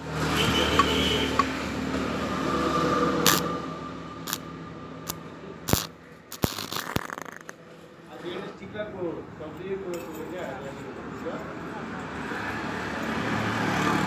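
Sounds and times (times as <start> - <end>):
welding arc crackles: 3.2 - 3.5, 5.1 - 7.6
welder hum: 3.2 - 3.6, 4.2 - 7.6.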